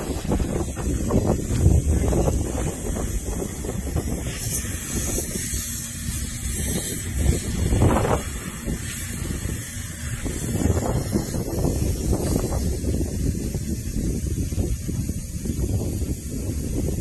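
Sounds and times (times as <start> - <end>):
air hissing out of tire valve: 0.0 - 17.0.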